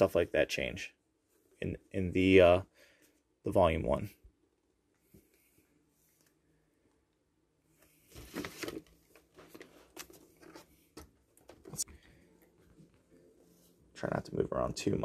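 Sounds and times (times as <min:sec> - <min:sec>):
paper rustling and sliding: 0:07.8 - 0:11.0.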